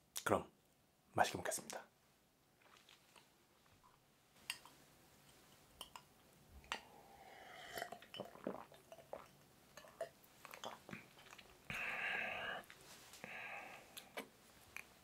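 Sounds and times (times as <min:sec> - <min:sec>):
person sipping and swallowing: 0:02.6 - 0:03.8, 0:04.5 - 0:15.0.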